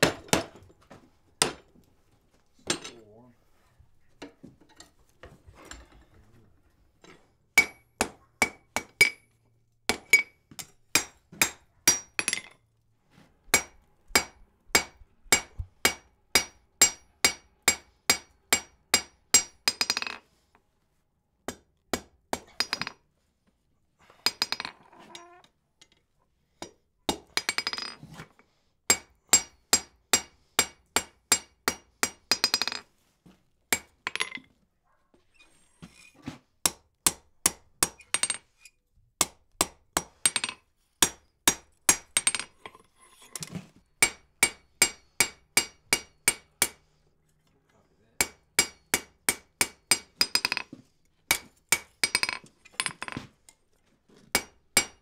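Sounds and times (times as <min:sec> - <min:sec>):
hammer striking iron on anvil: 0:07.6 - 0:09.2, 0:09.9 - 0:12.5, 0:13.5 - 0:20.1, 0:28.9 - 0:32.8, 0:39.2 - 0:42.4, 0:44.0 - 0:46.8, 0:48.2 - 0:50.6, 0:51.3 - 0:52.4, 0:54.3 - 0:55.0.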